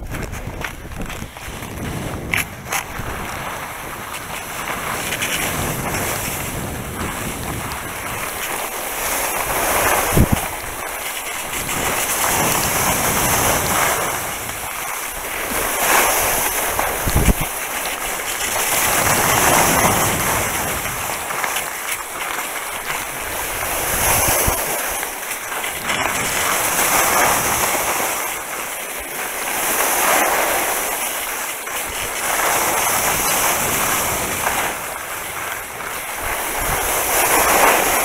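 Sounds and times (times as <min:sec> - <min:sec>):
wind on microphone: 0:00.0 - 0:14.8, 0:15.4 - 0:17.6, 0:23.1 - 0:25.0, 0:31.9 - 0:38.0
skis hissing over snow: 0:00.2 - 0:38.0.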